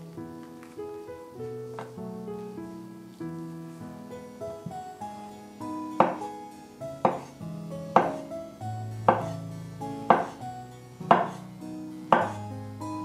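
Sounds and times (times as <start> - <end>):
background music: 0.0 - 13.0
knife chopping on wooden board: 6.0 - 6.3, 7.1 - 7.3, 8.0 - 8.2, 9.1 - 9.4, 10.1 - 10.4, 11.1 - 11.4, 12.2 - 12.4.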